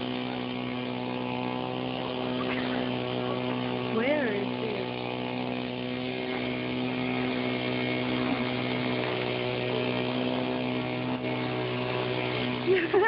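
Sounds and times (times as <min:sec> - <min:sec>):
steady motor drone: 0:00.0 - 0:13.0.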